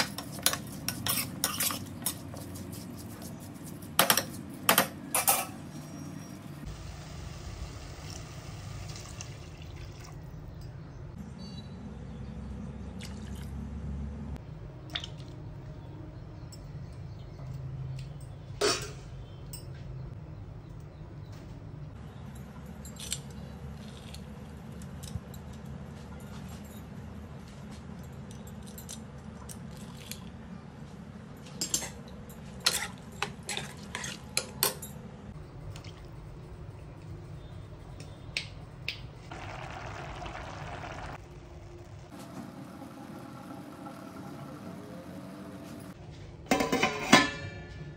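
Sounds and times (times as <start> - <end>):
water pouring and splashing: 8.1 - 10.2, 39.3 - 41.2
ladle clinking in a pot: 46.5 - 47.8.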